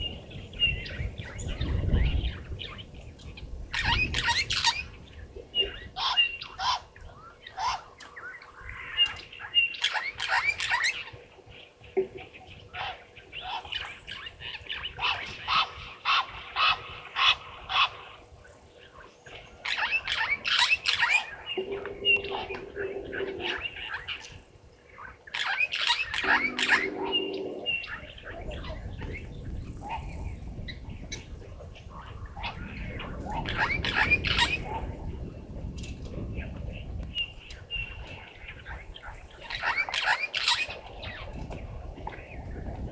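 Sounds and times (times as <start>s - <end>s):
low held tone: 21.5s - 23.9s, 26.2s - 28.4s
wild dogs chirping and squeaking: 25.3s - 30.4s, 39.3s - 41.2s.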